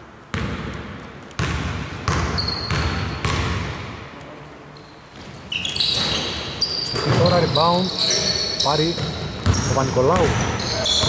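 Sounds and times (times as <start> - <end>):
basketball bouncing echoing: 0.3 - 4.1, 5.2 - 11.0
sneakers squeaking on floor: 1.4 - 3.5, 4.8 - 11.0.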